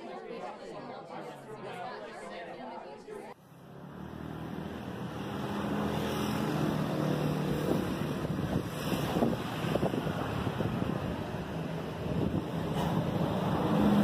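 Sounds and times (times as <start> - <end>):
low engine hum: 3.4 - 14.0
wind buffeting microphone: 7.2 - 14.0.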